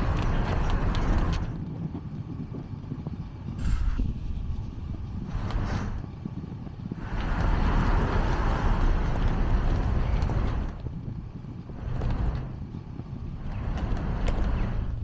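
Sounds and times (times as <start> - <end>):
constant low rumble: 0.0 - 15.0
vehicle passing: 3.6 - 15.0.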